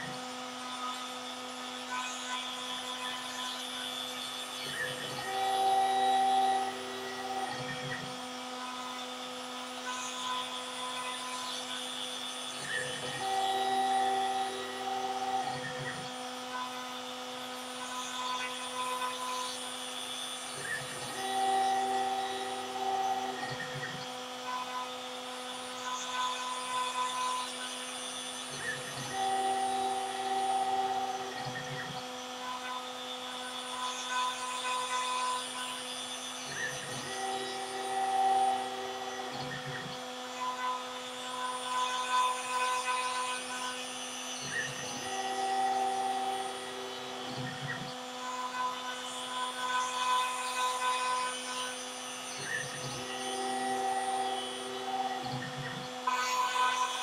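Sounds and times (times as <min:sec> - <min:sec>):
machine motor drive whine: 0:00.0 - 0:57.0
router motor whining: 0:00.0 - 0:57.0.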